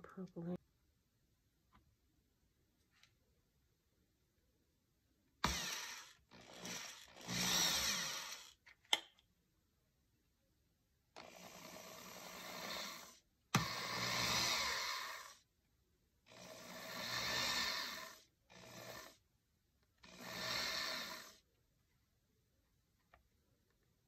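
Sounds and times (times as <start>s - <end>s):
power drill boring: 5.4s - 8.6s, 11.2s - 15.4s, 16.3s - 19.2s, 20.0s - 21.4s.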